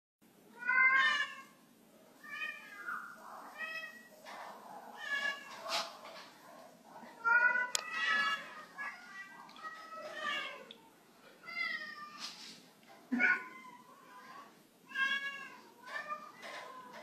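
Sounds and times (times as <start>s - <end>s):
cat meowing: 2.2s - 4.1s, 13.1s - 17.0s.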